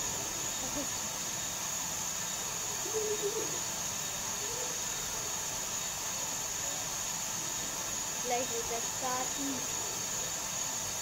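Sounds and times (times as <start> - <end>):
steady high hiss: 0.0 - 11.0.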